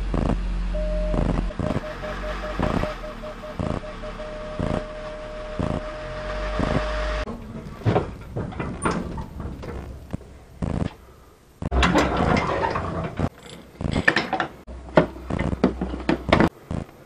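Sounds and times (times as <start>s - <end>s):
car engine idling: 0.0s - 11.6s
parking sensor beeps: 0.7s - 7.0s.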